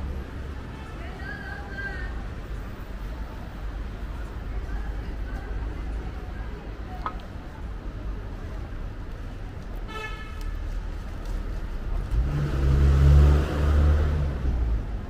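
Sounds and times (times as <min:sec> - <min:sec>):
street traffic noise: 0:00.0 - 0:15.0
motor vehicle passing close: 0:12.0 - 0:14.8.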